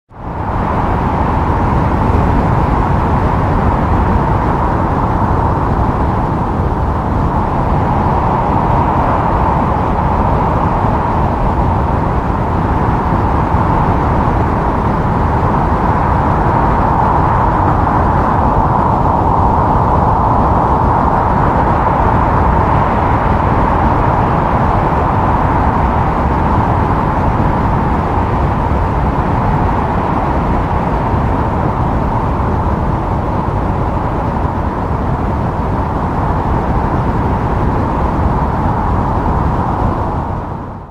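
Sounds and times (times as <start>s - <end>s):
wind blowing with whistling: 0.1s - 40.9s.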